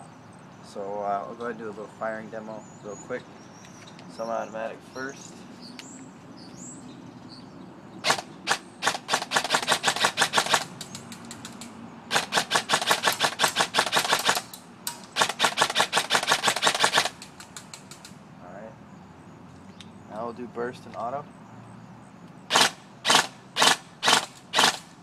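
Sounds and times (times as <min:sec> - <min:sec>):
airsoft gun shots: 0:08.0 - 0:10.7, 0:12.1 - 0:14.5, 0:15.2 - 0:17.2, 0:22.5 - 0:24.9.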